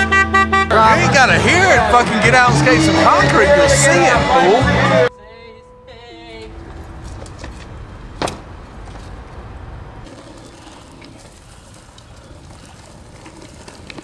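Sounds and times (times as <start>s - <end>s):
skateboard wheels rolling: 6.6s - 14.0s
skateboard hitting ground: 7.1s - 9.1s, 10.1s - 14.0s.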